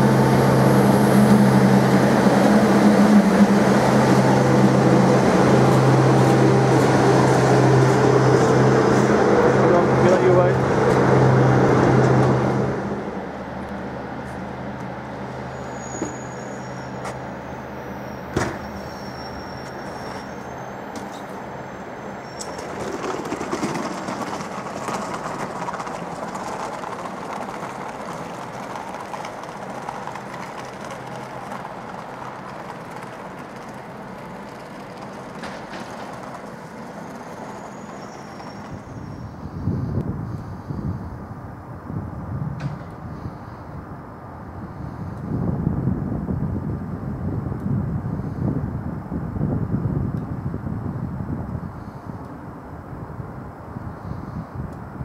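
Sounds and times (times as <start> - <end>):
train wheels rumbling: 0.0 - 17.4, 18.2 - 40.0
faint high-pitched squeals: 15.5 - 23.4, 37.1 - 40.0.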